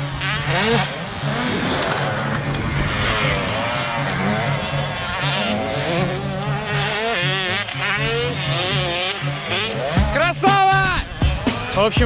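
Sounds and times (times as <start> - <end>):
dirt bike engines revving: 0.0 - 12.0
background music with steady beat: 8.3 - 12.0.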